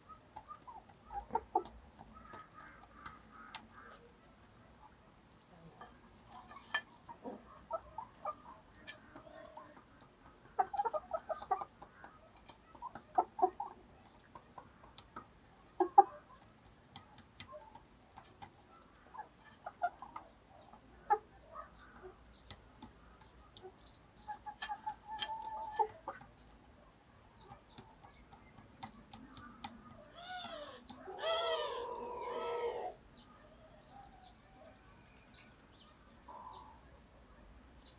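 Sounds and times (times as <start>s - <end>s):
chickens clucking: 0.0s - 37.9s
chicken long drawn-out call: 30.2s - 33.0s.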